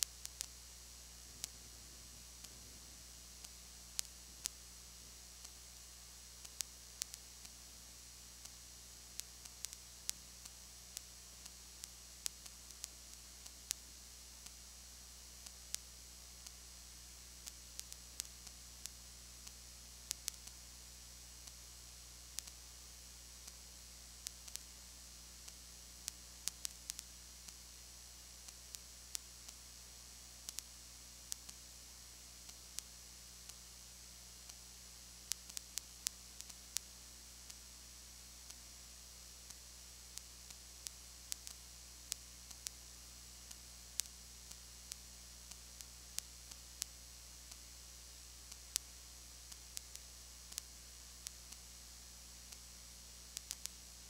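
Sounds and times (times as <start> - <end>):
low electrical hum with hiss: 0.0 - 54.0
sharp clicks: 53.4 - 53.8.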